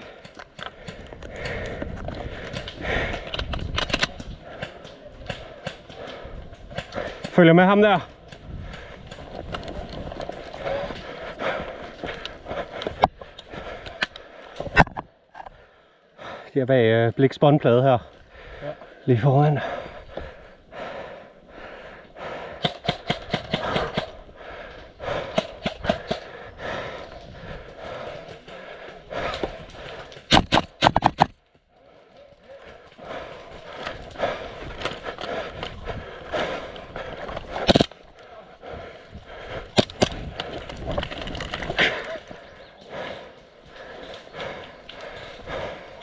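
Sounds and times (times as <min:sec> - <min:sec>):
heavy breathing: 0:00.0 - 0:07.5, 0:08.1 - 0:16.7, 0:18.0 - 0:30.8, 0:31.4 - 0:46.0
sharp cracks: 0:22.6 - 0:24.2, 0:25.2 - 0:26.3, 0:29.2 - 0:31.4, 0:37.4 - 0:38.2, 0:39.6 - 0:42.2.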